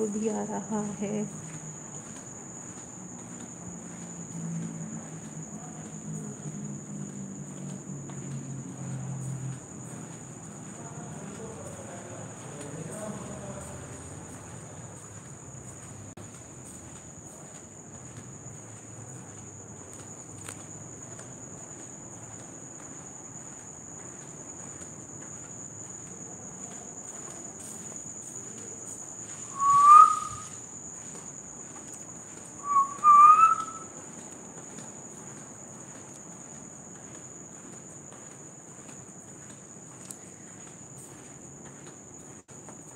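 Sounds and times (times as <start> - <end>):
crickets chirring: 0.0 - 42.9
short rising whistles: 29.5 - 30.6, 32.6 - 33.9.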